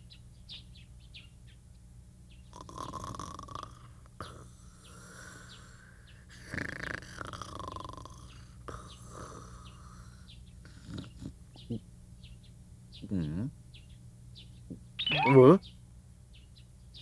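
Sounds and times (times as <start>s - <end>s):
cartoon snoring with whistle: 2.5s - 5.7s, 6.4s - 9.6s
faint high chirps: 14.7s - 15.7s.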